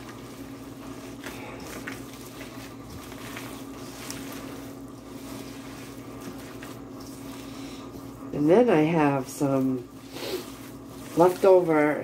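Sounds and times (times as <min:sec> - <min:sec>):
wet squishing of meat: 0:00.0 - 0:08.8
steady low hum: 0:00.0 - 0:12.0.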